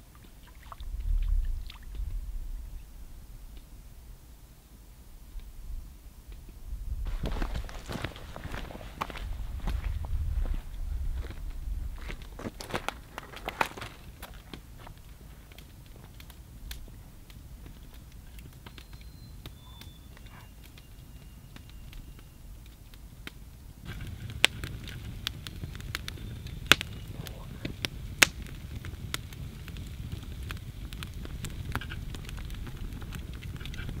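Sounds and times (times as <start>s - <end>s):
wood fire crackling: 0.0s - 34.0s
loud sharp fire pops: 6.3s - 34.0s
faint bird whistles: 18.6s - 22.6s.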